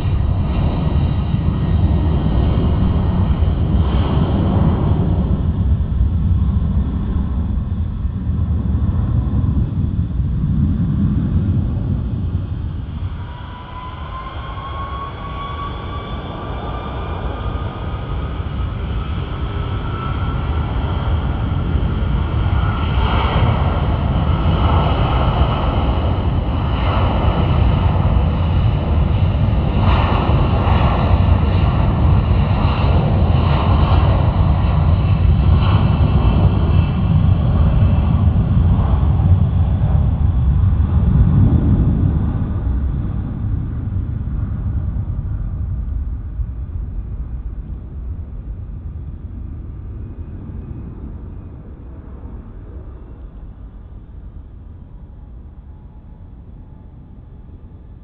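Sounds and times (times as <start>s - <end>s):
jet engines spooling up: 0.0s - 34.7s
low rumble: 0.0s - 58.0s.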